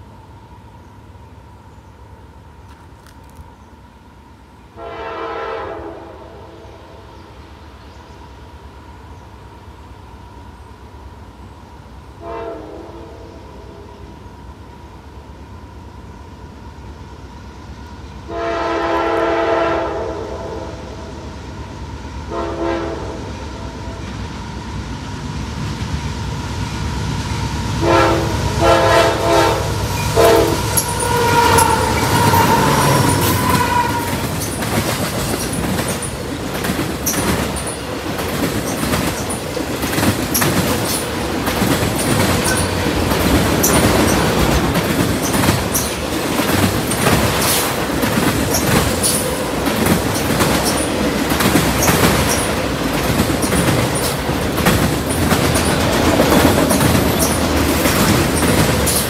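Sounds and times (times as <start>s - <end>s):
diesel locomotive horn blasts: 4.7s - 7.1s, 12.2s - 14.0s, 18.2s - 21.1s, 22.2s - 24.0s, 27.8s - 34.3s
train wheels clacking over rail joints: 27.8s - 59.0s
faint flange squeal: 30.0s - 34.6s.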